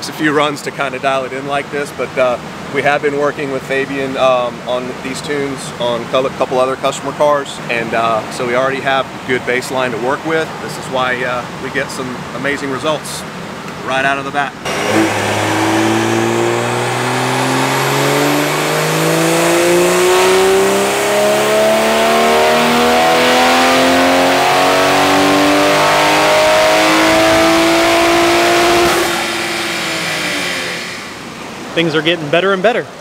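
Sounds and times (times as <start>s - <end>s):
turbocharged engine at full throttle: 14.6s - 31.8s.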